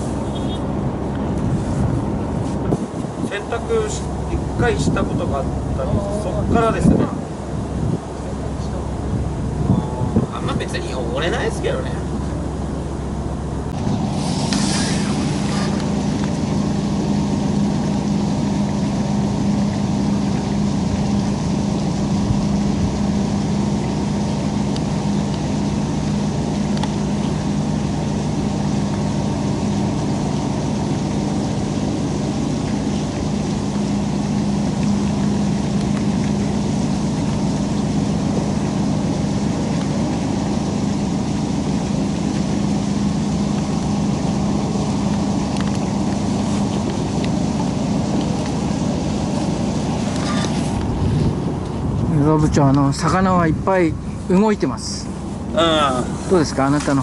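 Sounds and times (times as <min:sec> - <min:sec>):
low mechanical hum: 0:00.0 - 0:57.0
brief hiss: 0:14.1 - 0:15.8.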